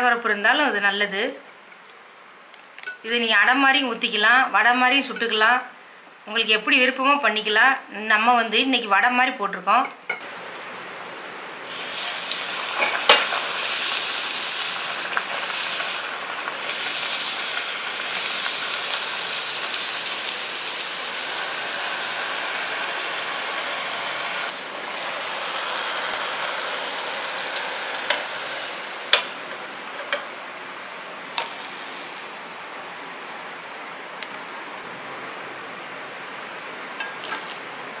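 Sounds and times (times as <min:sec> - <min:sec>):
patty sizzling in hot oil: 0:11.6 - 0:30.4, 0:31.3 - 0:32.3.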